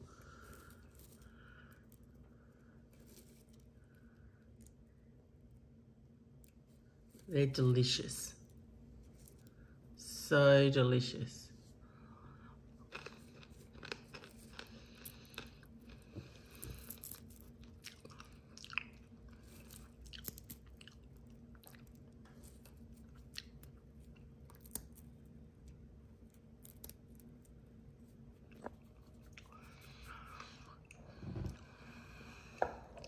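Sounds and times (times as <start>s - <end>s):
person chewing crunchy food: 12.8s - 25.2s, 28.3s - 33.0s.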